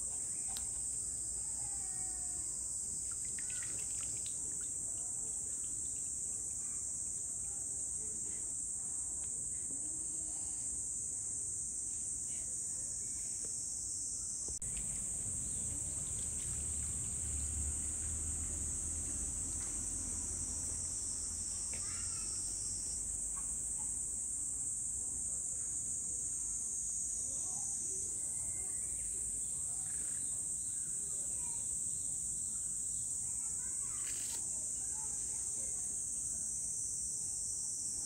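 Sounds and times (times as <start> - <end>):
high-pitched insect drone: 13.2 - 23.4
low background rumble: 14.6 - 20.6.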